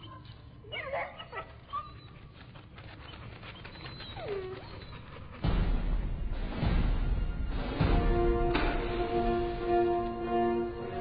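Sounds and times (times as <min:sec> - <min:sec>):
dog whimpering and yelping: 0:00.0 - 0:05.4.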